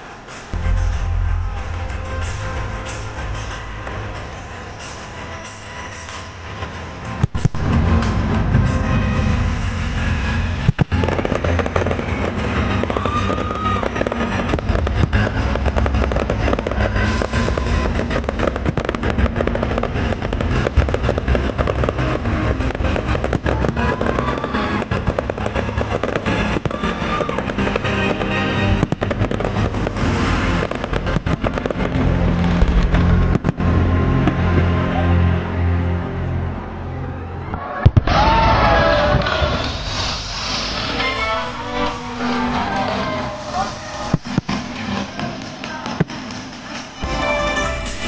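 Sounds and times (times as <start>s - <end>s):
deep rumble of bursts: 0.5s - 45.0s
fireworks crackling and popping: 7.1s - 8.2s, 10.0s - 34.7s, 39.0s - 47.0s
music from loudspeakers: 39.0s - 48.0s.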